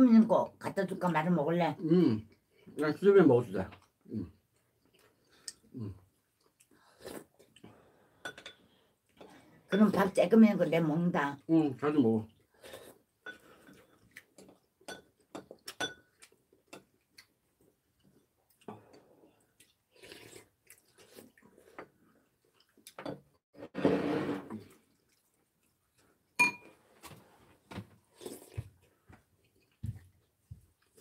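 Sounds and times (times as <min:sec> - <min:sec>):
chewing: 0:12.3 - 0:23.0, 0:24.6 - 0:26.4, 0:28.1 - 0:31.0
slurping soup: 0:19.9 - 0:22.1, 0:23.6 - 0:25.3.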